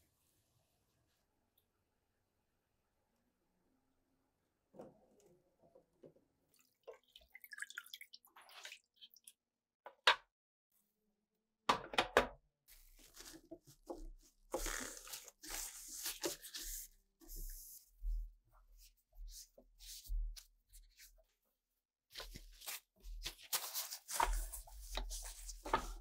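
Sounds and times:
water dripping and splashing: 0:06.5 - 0:09.4
cloth rubbing on plastic: 0:12.7 - 0:18.0.

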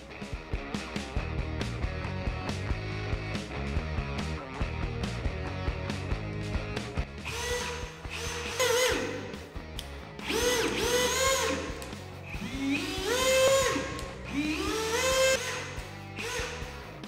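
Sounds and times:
cordless drill whining: 0:07.2 - 0:17.0.

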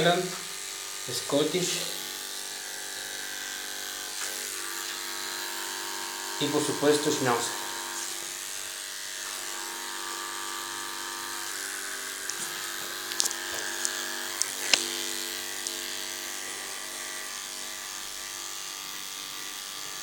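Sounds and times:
electric clipper buzzing: 0:00.0 - 0:20.0
sharp clicks: 0:12.2 - 0:15.0.

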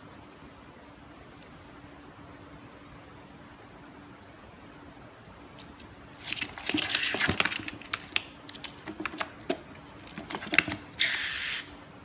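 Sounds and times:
bird claws scratching cardboard: 0:06.2 - 0:11.4.

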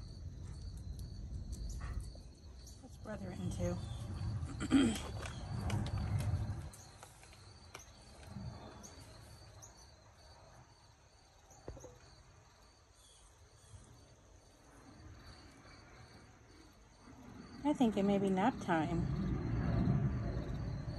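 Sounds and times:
low microphone rumble: 0:02.9 - 0:07.0, 0:17.3 - 0:20.9.

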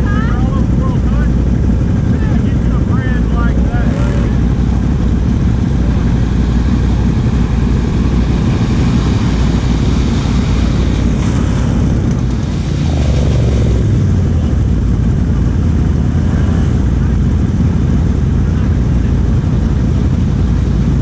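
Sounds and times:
atv engine idling: 0:00.0 - 0:21.0
atv engine revving: 0:00.0 - 0:21.0
tyres spinning through mud: 0:03.7 - 0:17.3.

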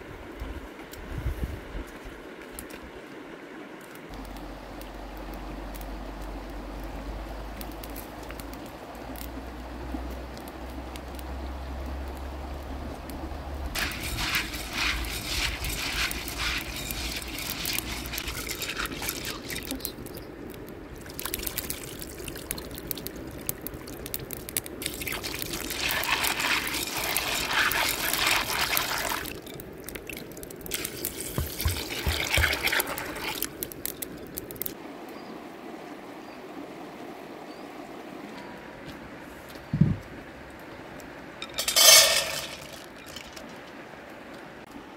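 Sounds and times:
water pouring and splashing: 0:13.0 - 0:34.8, 0:41.4 - 0:43.9.

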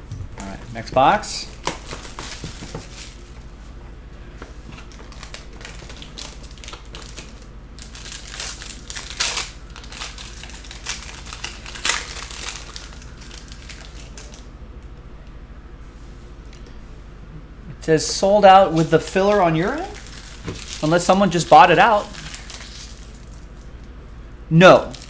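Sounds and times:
foil wrapper crinkling: 0:00.4 - 0:03.4, 0:04.6 - 0:14.5, 0:18.7 - 0:23.9, 0:24.8 - 0:25.0.

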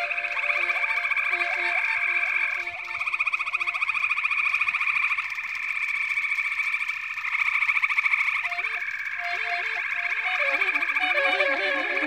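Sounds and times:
frog chorus trilling: 0:00.0 - 0:12.0
tenor saxophone notes: 0:09.3 - 0:12.0.

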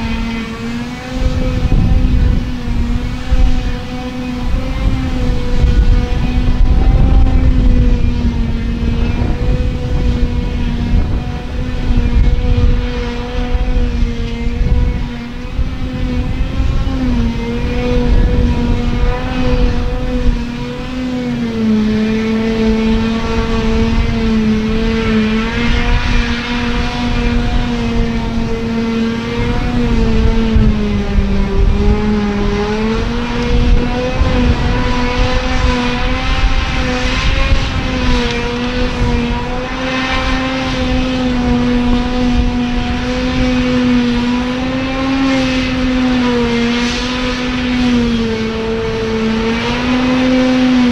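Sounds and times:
forage harvester machine drone: 0:00.0 - 0:50.9.

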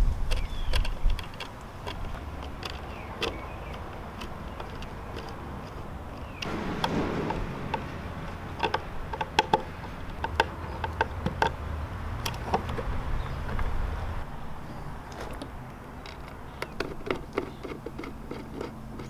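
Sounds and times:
screwdriver clicking and scraping: 0:00.2 - 0:11.6, 0:15.1 - 0:19.0.

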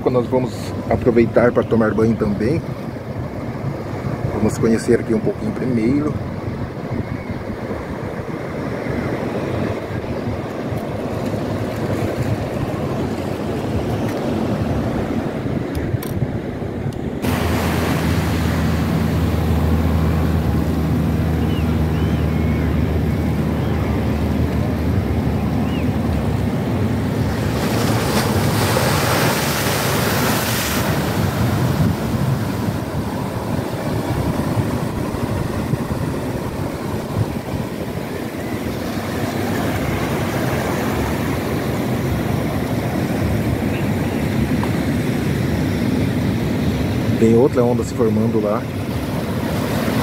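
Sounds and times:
surf washing around pilings: 0:00.0 - 0:50.0
wind on microphone: 0:02.1 - 0:47.3
wave splashing against pilings: 0:17.1 - 0:43.8.

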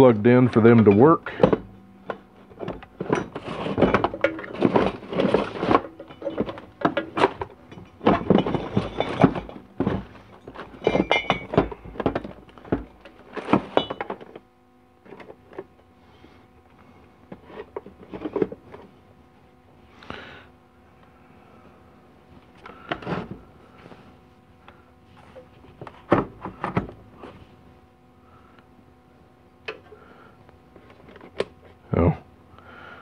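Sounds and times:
knocks and clatters of handled objects: 0:00.8 - 0:15.7.

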